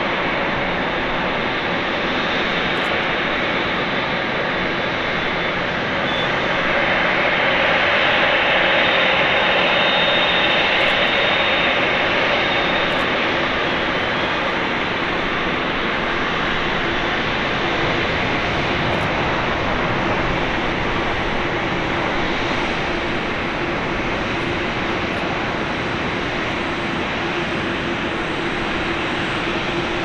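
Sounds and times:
jet engines hiss and rumble: 0.0 - 30.0
faint high whine: 4.9 - 17.0.

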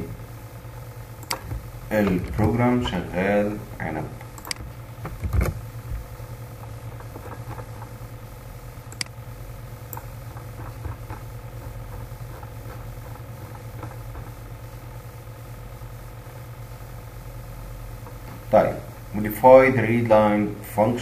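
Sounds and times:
low electrical hum: 0.0 - 21.0
faint clicks: 8.9 - 9.2.

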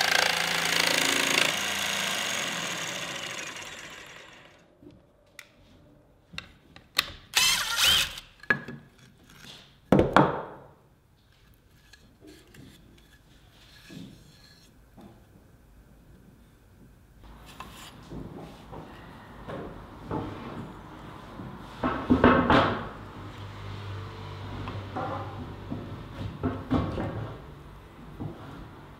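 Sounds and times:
impact driver running: 0.0 - 4.7, 7.4 - 8.3.

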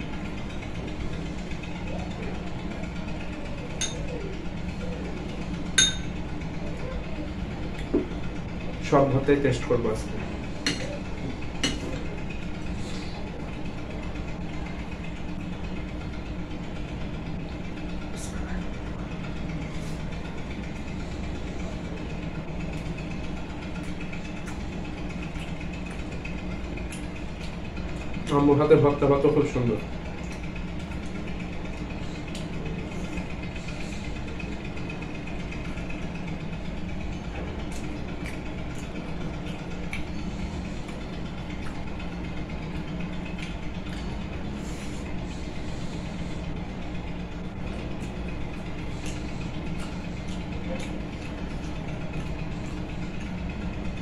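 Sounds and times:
low mechanical hum: 0.0 - 54.0
spoon clinking against bowl: 5.8 - 6.1.

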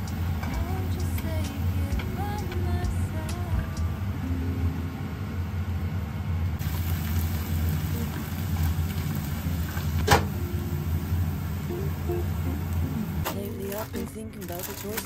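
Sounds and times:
steady low hum: 0.0 - 14.6
onions frying in a pan: 6.6 - 13.8.

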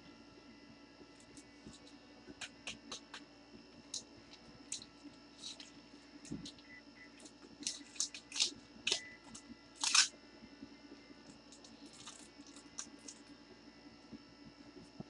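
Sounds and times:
card wrappers crinkling: 7.2 - 10.1, 11.5 - 13.3.

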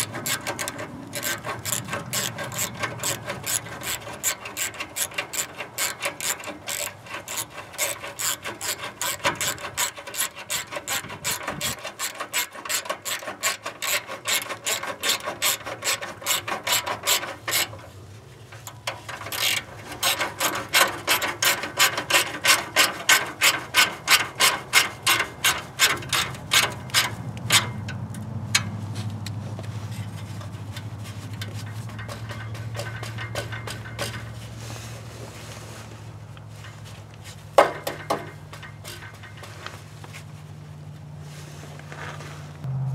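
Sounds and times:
ratchet wrench clicking: 0.0 - 17.7, 19.2 - 27.8.

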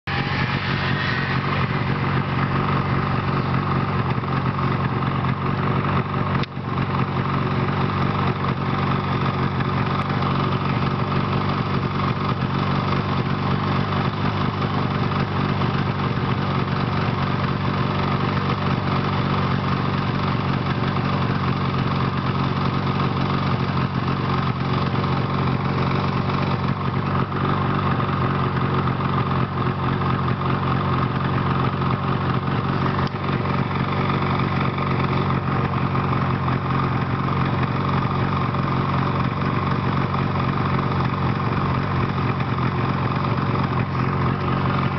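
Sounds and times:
snowmobile engine running: 0.0 - 44.9.

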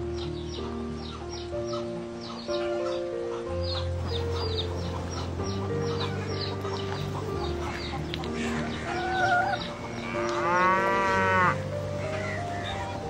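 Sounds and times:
hen calling: 0.0 - 13.0
soft background music: 0.0 - 13.0
cow mooing: 8.3 - 12.9.

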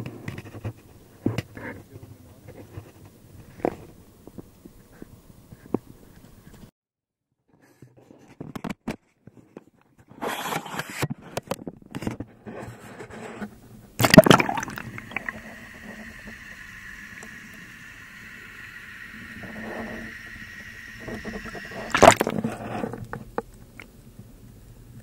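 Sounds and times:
loud splash: 14.0 - 22.4
faint high whine: 14.0 - 22.6
water sloshing and splashing: 14.0 - 22.7
muffled underwater sound: 14.0 - 23.0.

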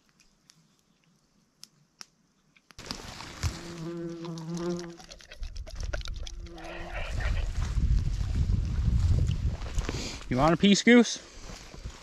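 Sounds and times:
outdoor background: 0.0 - 12.0
fly buzzing: 3.4 - 5.5, 6.2 - 7.7.

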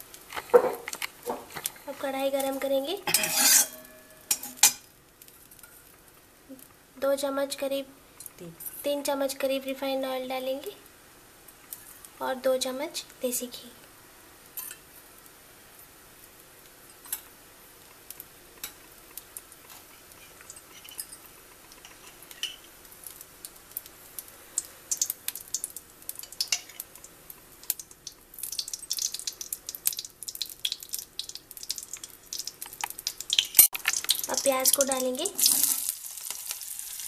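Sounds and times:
oil crackling and popping: 0.0 - 3.0, 15.0 - 37.0.

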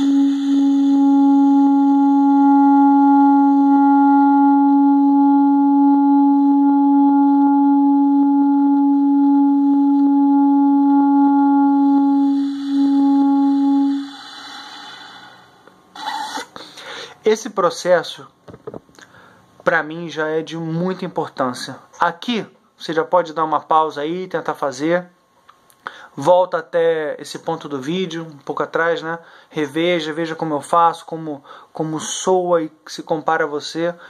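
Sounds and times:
long steady reed tone: 0.0 - 17.2
faint breathy hiss: 12.3 - 17.3, 18.9 - 19.7, 25.6 - 26.4, 29.2 - 29.8, 31.2 - 32.4.

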